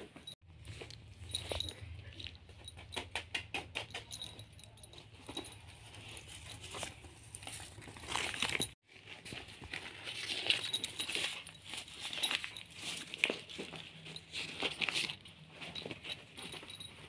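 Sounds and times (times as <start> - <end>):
banknotes crinkling: 5.2 - 17.0.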